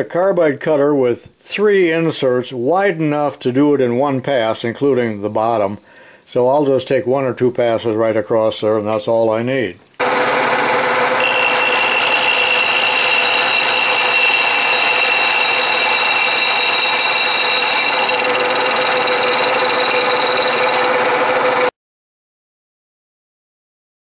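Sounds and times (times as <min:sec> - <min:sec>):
cutter whine: 0:10.0 - 0:21.7
milling machine cutting metal: 0:10.0 - 0:21.7.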